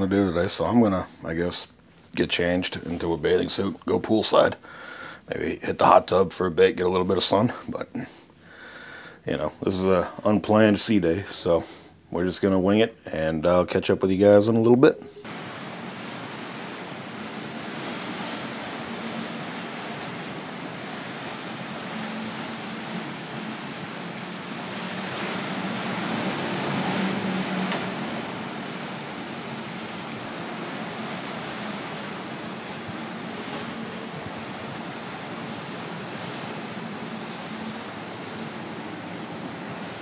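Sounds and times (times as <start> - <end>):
wind: 0.0 - 40.0
rushing sea water: 14.7 - 40.0.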